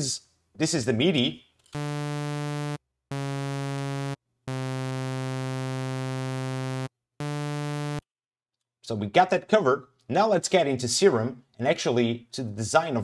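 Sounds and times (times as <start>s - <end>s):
buzzy synthesizer bass line: 1.8s - 8.0s.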